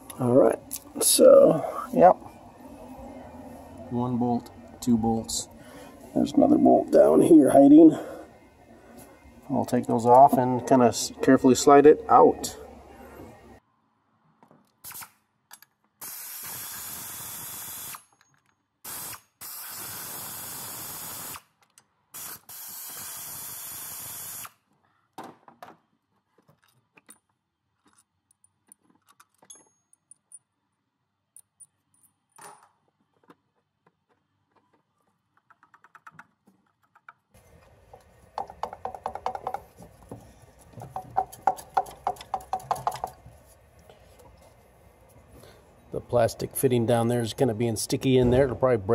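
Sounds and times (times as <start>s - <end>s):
pneumatic air ratchet: 14.8s - 15.2s, 16.0s - 18.2s, 18.8s - 21.5s, 22.1s - 24.6s
metallic clinks of bolts and tools: 26.6s - 30.6s, 31.3s - 32.8s.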